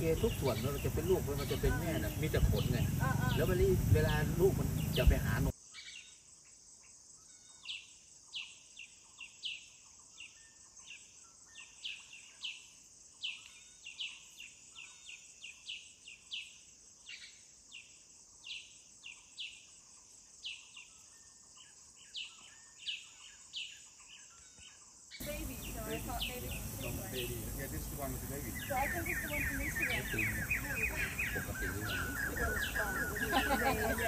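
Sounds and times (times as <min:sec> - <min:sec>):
high insect drone: 0:00.0 - 0:34.0.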